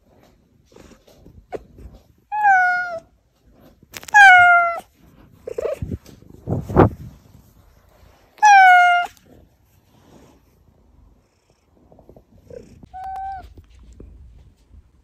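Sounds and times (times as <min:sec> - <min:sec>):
cat meowing: 0:02.3 - 0:03.1, 0:04.0 - 0:04.9, 0:08.4 - 0:09.2, 0:12.8 - 0:13.6.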